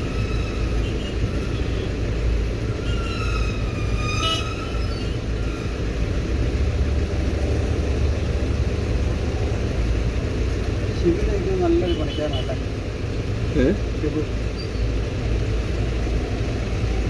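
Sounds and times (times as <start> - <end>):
traffic engines idling: 0.0 - 17.0.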